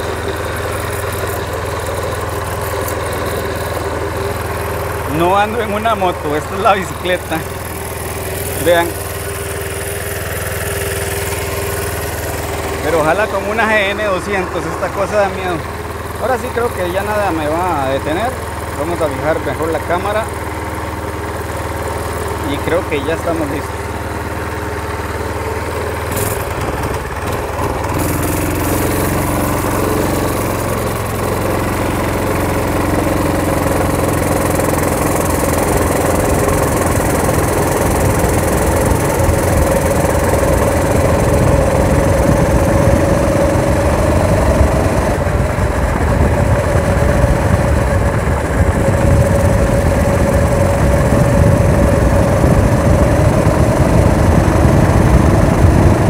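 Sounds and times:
motorized bicycle engine running: 0.0s - 56.0s
wind rumble on microphone: 38.1s - 56.0s.

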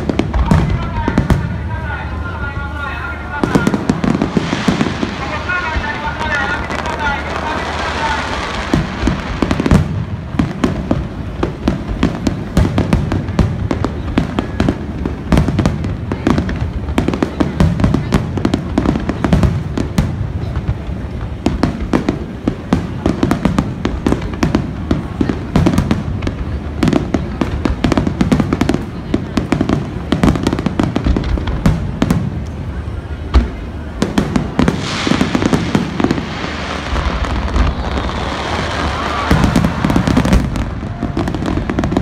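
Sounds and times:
fireworks bursting and crackling: 0.0s - 42.0s.

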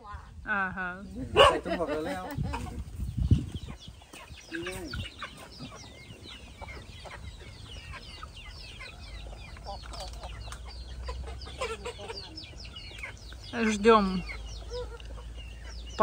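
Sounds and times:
chickens clucking: 1.0s - 16.0s.

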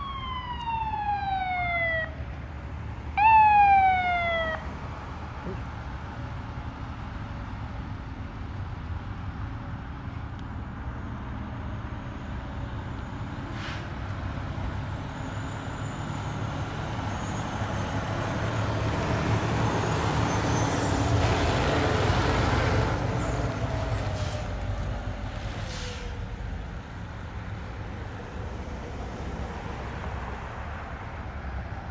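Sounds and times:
fire truck driving past: 0.0s - 10.0s, 10.6s - 31.9s.

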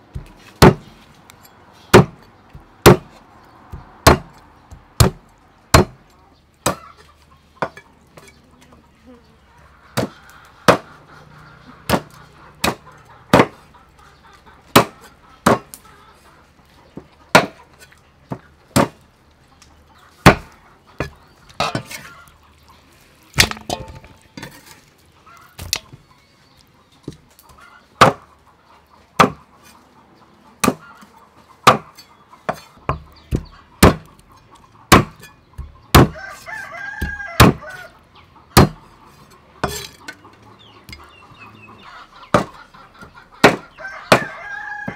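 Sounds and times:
cleaver chopping on wooden block: 0.1s - 0.9s, 1.9s - 6.0s, 10.7s - 10.9s, 11.9s - 13.6s, 14.7s - 15.7s, 17.3s - 17.6s, 20.2s - 22.0s, 23.4s - 24.2s, 28.0s - 28.2s, 29.2s - 29.4s, 30.6s - 30.8s, 31.6s - 34.1s, 34.9s - 36.2s, 37.0s - 37.7s, 38.6s - 38.8s, 42.3s - 42.6s, 43.4s - 44.3s
rooster crowing: 36.0s - 38.0s, 43.6s - 44.9s.

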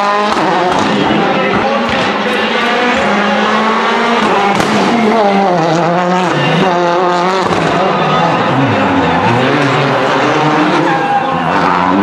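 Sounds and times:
engine sharp crack: 0.0s - 8.4s
rally car engine revving: 0.0s - 12.0s.

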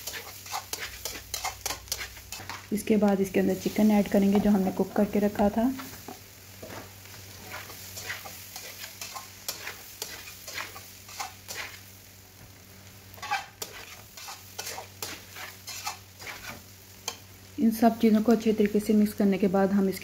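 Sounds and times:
spatula scraping metal pan: 0.0s - 2.7s, 7.4s - 11.8s, 13.2s - 16.6s
food sizzling: 0.0s - 20.0s.

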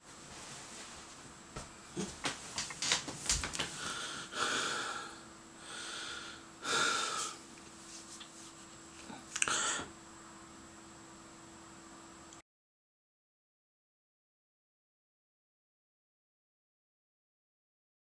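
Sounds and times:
man breathing hard and snorting: 3.7s - 7.4s, 9.0s - 9.9s.

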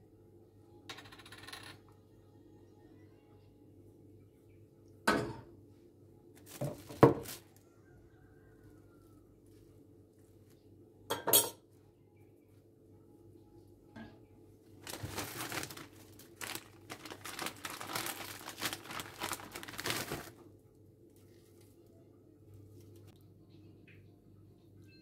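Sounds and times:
plastic bag crinkling: 6.4s - 7.5s, 14.8s - 20.4s.

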